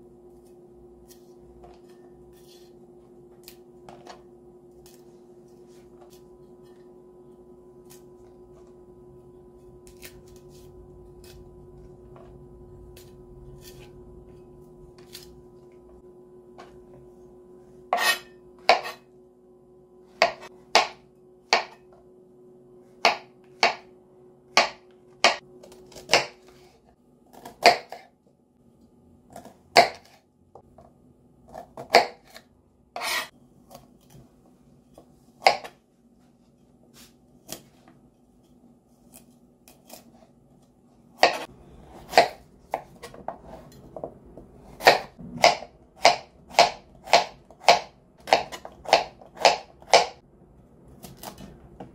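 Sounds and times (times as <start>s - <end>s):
knife cutting on cutting board: 17.9s - 19.0s, 33.0s - 34.2s, 41.2s - 43.9s.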